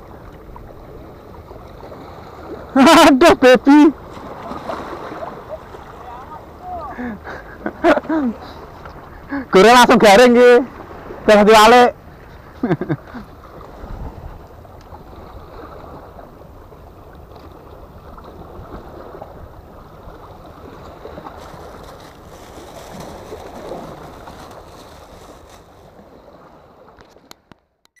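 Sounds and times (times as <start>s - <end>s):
sea waves washing against rocks: 0.8s - 6.9s, 17.8s - 27.0s
wind buffeting microphone: 13.4s - 16.3s.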